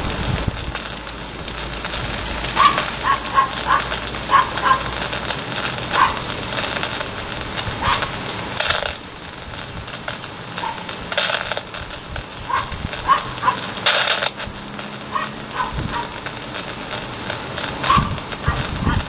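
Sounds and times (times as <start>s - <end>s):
steady background hiss: 0.0s - 19.0s
distant dog barking: 2.5s - 5.2s, 5.8s - 6.4s, 7.8s - 8.2s, 10.6s - 11.0s, 12.4s - 13.8s, 15.1s - 16.3s, 17.8s - 19.0s.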